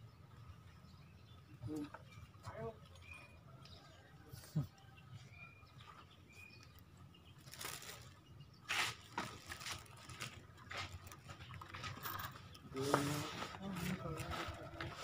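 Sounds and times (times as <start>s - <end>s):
rustling and scuffing: 7.4s - 15.0s.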